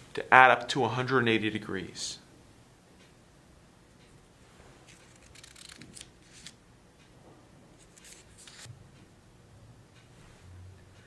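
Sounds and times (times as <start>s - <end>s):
paper rustling and scraping: 4.9s - 6.6s, 7.8s - 8.7s.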